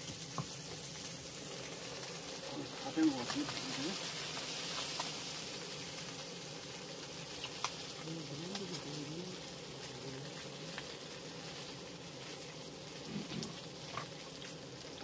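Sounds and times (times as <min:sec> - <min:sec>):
fish sizzling on a grill: 0:00.0 - 0:15.0
faint low voice murmuring: 0:08.0 - 0:10.6.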